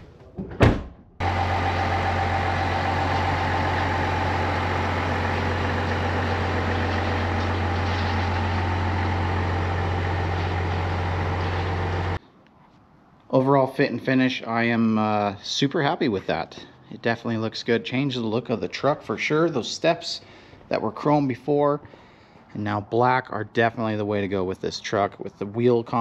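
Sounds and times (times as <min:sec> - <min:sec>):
thump: 0:00.4 - 0:01.0
truck engine idling: 0:01.2 - 0:12.2.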